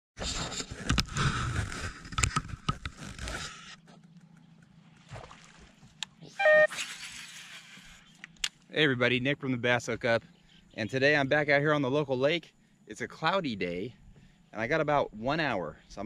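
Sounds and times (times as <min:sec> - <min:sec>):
water lapping against boat: 0:02.8 - 0:06.4
brief high tone: 0:06.3 - 0:06.8.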